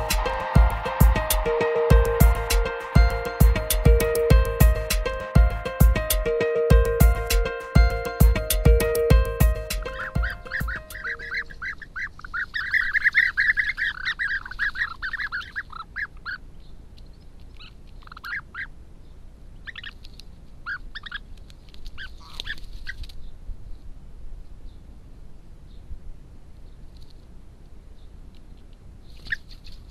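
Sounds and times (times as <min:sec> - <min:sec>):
bee-eaters calling: 0:09.4 - 0:16.1.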